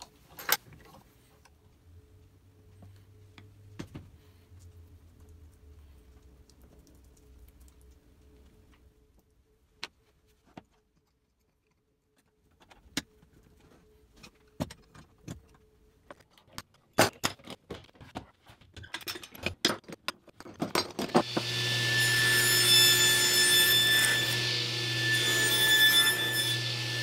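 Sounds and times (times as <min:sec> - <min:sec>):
metal clamps and wood blocks clattering: 0:16.3 - 0:21.2
table saw whining: 0:21.2 - 0:27.0.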